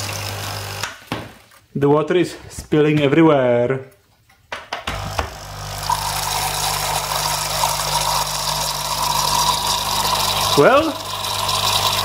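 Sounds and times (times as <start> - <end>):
coffee machine pump buzzing: 0.0 - 0.9, 4.9 - 12.0
water running and spilling: 0.0 - 1.6, 5.4 - 12.0.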